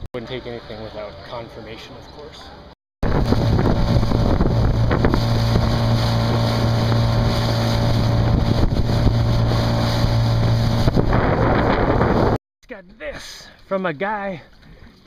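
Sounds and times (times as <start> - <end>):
motorboat engine running: 3.0 - 12.4
wind buffeting microphone: 3.0 - 12.4.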